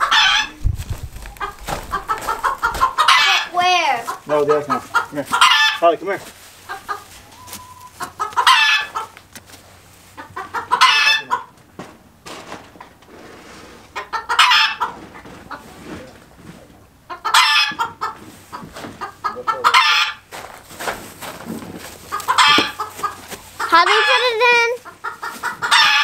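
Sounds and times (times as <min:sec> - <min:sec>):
rooster calling loudly: 0:00.0 - 0:06.0, 0:06.6 - 0:09.2, 0:10.1 - 0:11.6, 0:14.0 - 0:15.0, 0:17.1 - 0:18.2, 0:19.0 - 0:20.3, 0:22.1 - 0:26.0.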